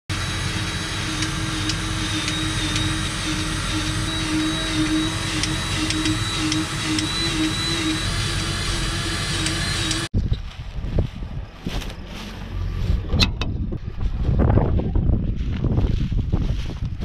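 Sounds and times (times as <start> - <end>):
faint high whine: 0.1 - 10.1
farm machinery rumbling: 0.1 - 17.0.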